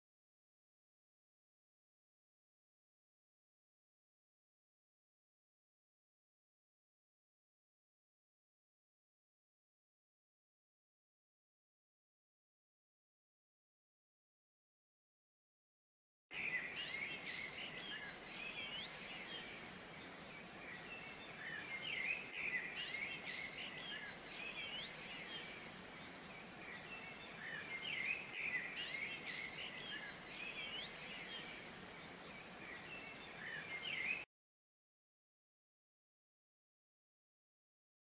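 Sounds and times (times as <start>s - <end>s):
faint steady hiss: 16.3s - 34.2s
small birds chirping: 16.3s - 34.3s.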